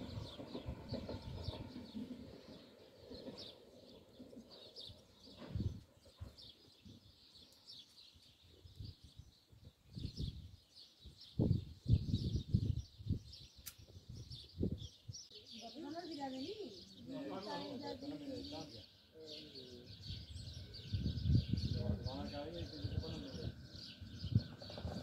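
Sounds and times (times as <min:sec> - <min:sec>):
train hum: 0:00.0 - 0:06.2, 0:20.4 - 0:25.0
small birds chirping: 0:00.0 - 0:25.0.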